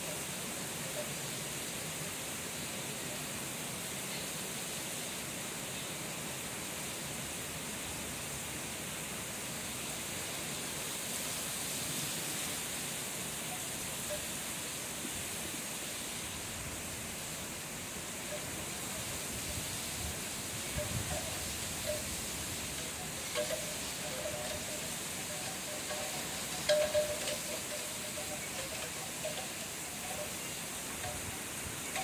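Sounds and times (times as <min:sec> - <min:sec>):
heavy rain falling: 0:16.1 - 0:32.0.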